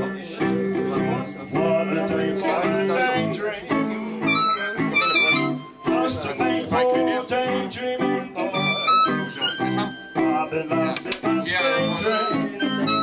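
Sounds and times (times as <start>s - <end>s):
acoustic guitar playing: 0.0s - 13.0s
high held instrument notes: 0.0s - 13.0s.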